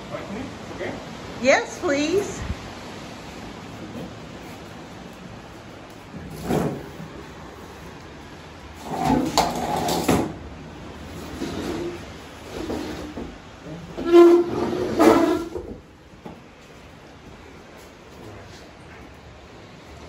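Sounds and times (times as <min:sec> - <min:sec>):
furniture legs scraping on tile: 0:06.2 - 0:07.1, 0:08.8 - 0:10.3, 0:11.1 - 0:15.8.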